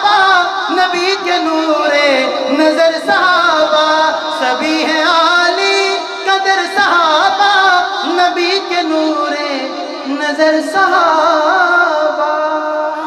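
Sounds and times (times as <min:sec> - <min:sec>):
man singing: 0:00.0 - 0:13.0.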